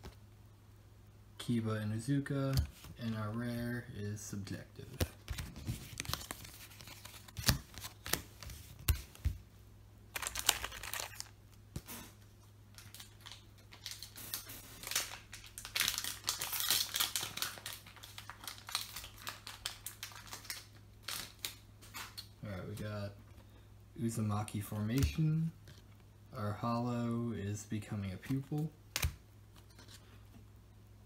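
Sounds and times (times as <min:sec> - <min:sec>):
wrapper crinkling and tearing: 0:10.1 - 0:11.4, 0:12.7 - 0:22.2.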